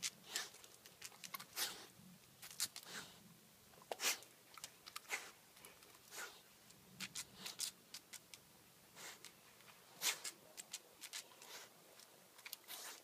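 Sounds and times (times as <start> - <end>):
claws scratching on concrete: 9.0 - 13.0.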